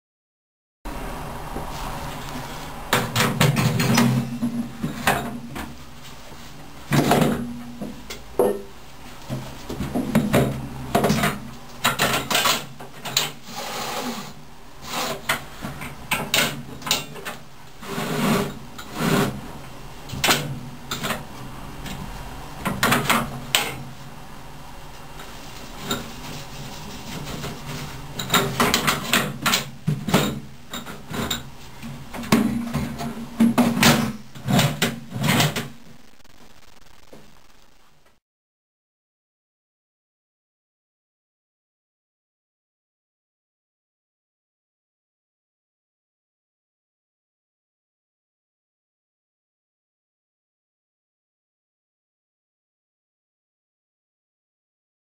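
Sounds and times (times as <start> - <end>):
steady low hum: 31.5 - 38.1.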